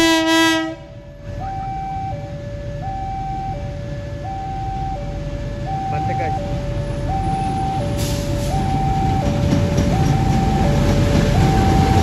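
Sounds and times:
locomotive horn blast: 0:00.0 - 0:01.0
locomotive rumble: 0:00.0 - 0:12.0
two-tone electronic warning signal: 0:01.4 - 0:12.0.

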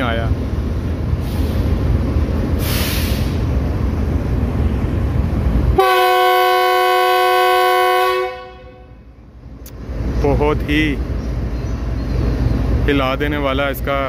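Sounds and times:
diesel locomotive engine rumbling: 0:00.0 - 0:14.0
brief hiss: 0:02.6 - 0:03.5
locomotive air horn: 0:05.8 - 0:09.1.

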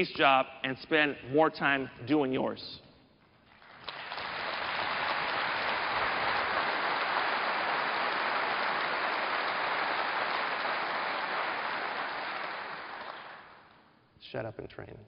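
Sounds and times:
large audience applauding: 0:03.5 - 0:13.9.

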